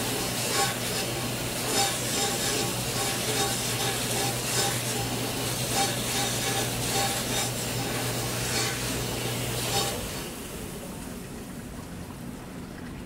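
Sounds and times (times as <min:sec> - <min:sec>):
water hissing and splashing: 0:00.0 - 0:12.3
dishwasher motor hum: 0:00.0 - 0:13.0
water flowing through drain: 0:05.0 - 0:13.0.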